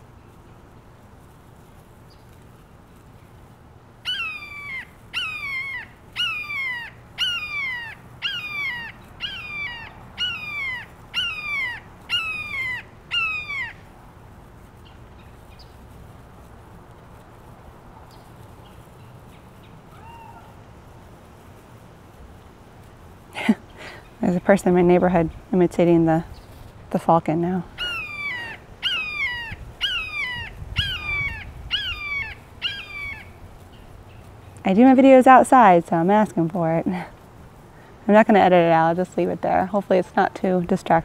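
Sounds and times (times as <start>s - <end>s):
bird of prey screaming calls: 4.0s - 13.9s, 19.9s - 20.6s, 27.8s - 33.4s.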